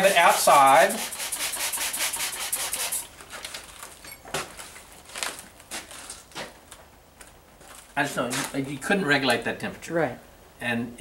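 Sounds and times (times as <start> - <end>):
scratchy rubbing: 0.0 - 3.0.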